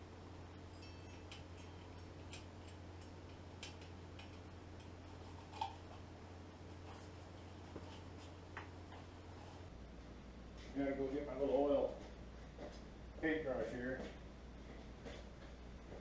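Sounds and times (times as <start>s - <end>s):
steady low hum: 0.0s - 16.0s
light metal clicks and taps: 0.7s - 5.0s.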